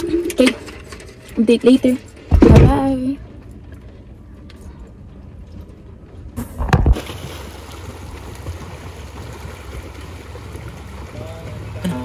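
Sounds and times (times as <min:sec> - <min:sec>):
swimmers splashing in pool: 0:07.0 - 0:12.0.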